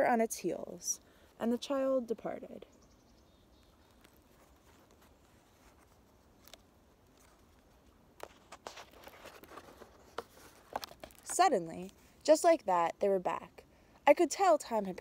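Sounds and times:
paper page turning: 4.0 - 11.3.

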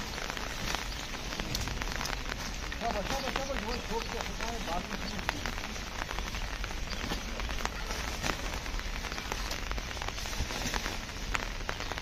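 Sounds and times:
low rumble: 0.0 - 3.2
rain falling: 0.0 - 12.0
raindrops ticking on hard surfaces: 0.0 - 12.0.

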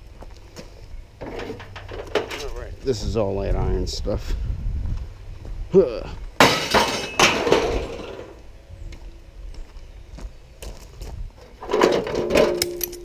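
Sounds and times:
scrap metal clanking: 1.2 - 2.6, 6.4 - 8.4, 11.4 - 13.0.

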